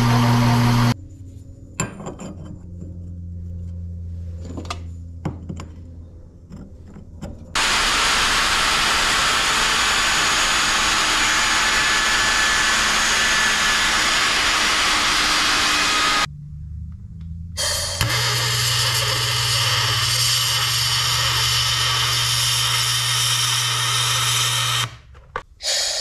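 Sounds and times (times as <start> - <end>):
router cutting metal: 0.0 - 1.0, 7.6 - 16.3, 17.6 - 25.0
low hum: 0.0 - 23.3.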